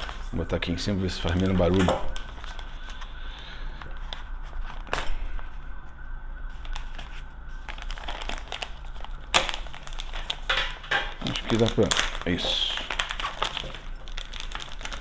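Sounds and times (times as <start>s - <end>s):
plastic bag crinkling: 0.0s - 3.2s, 6.6s - 15.0s.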